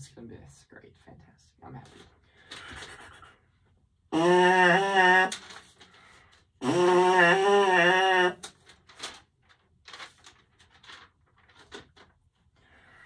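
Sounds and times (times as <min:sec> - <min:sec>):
trombone mouthpiece buzzing: 0:04.1 - 0:05.3, 0:06.6 - 0:08.4
soft breath: 0:12.6 - 0:13.0.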